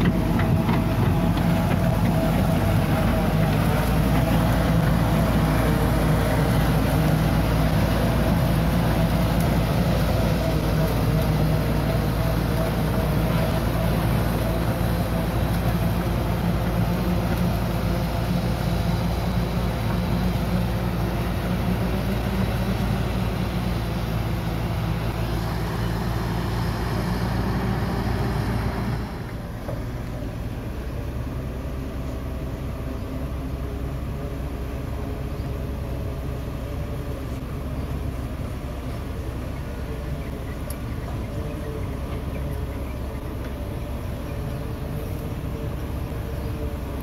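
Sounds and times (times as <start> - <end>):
diesel engine humming: 0.0 - 47.0.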